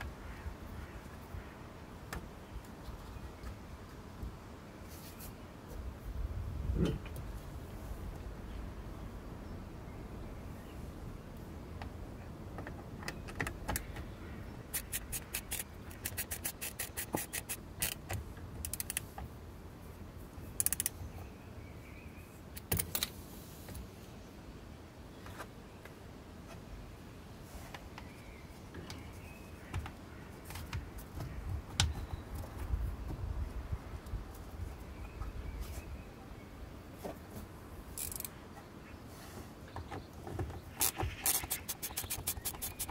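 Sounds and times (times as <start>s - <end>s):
ratchet clicking: 14.7s - 18.0s, 38.0s - 38.3s, 40.8s - 42.9s.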